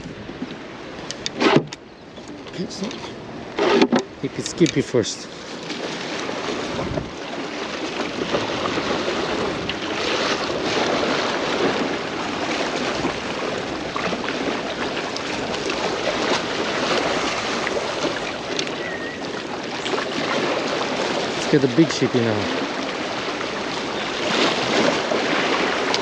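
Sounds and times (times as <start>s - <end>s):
waves washing against a jetty: 0.0s - 26.0s
wind on microphone: 5.8s - 26.0s.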